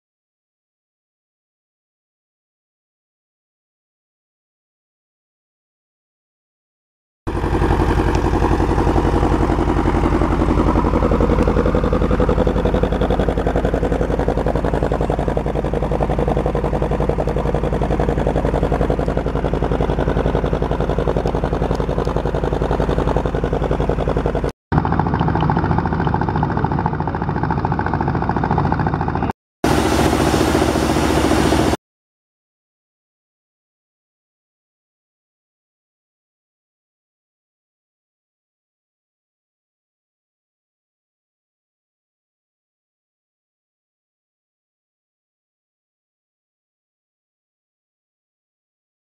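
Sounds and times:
drilling rig engine running: 7.3s - 31.8s.

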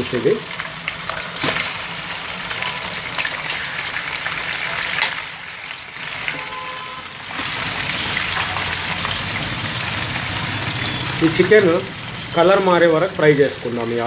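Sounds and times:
chicken sizzling in hot oil: 0.0s - 14.0s.

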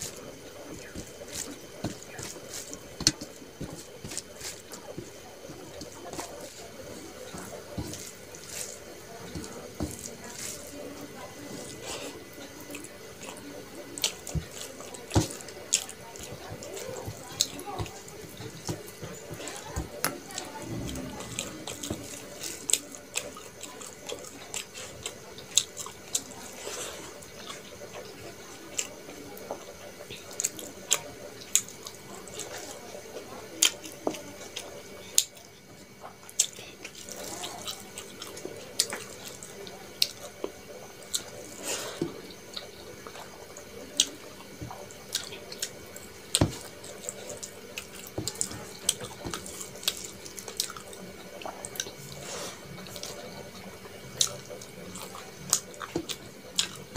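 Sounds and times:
wet squelching of food: 0.0s - 29.2s, 29.8s - 56.9s
chewing and lip smacks: 44.7s - 45.7s, 46.8s - 52.1s, 54.2s - 56.9s.

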